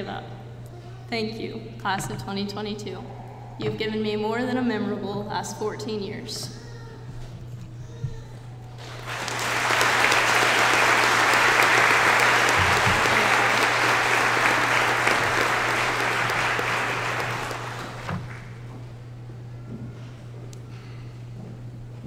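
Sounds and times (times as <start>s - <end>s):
audience applauding: 8.8s - 18.6s.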